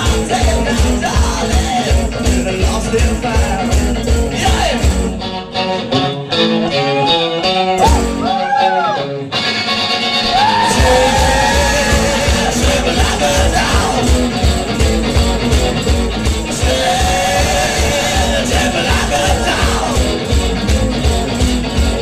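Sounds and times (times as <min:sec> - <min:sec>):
steady drum beat: 0:00.0 - 0:05.2, 0:07.8 - 0:08.4, 0:10.2 - 0:22.0
electric guitar: 0:00.0 - 0:22.0
loud singing: 0:10.2 - 0:14.7, 0:16.3 - 0:20.7.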